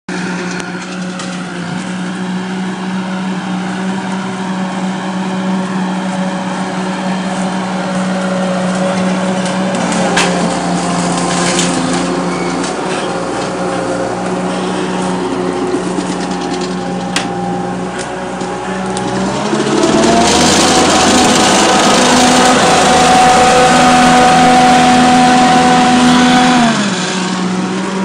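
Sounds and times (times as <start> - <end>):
diesel engine running under load: 0.1 - 28.0
branches cracking and snapping: 8.0 - 14.4.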